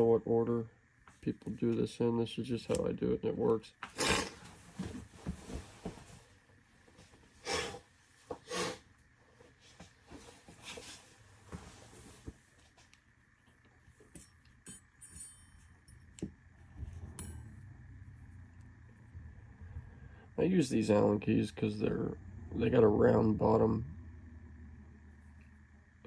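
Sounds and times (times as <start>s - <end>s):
metal keys clinking together: 14.2s - 16.0s.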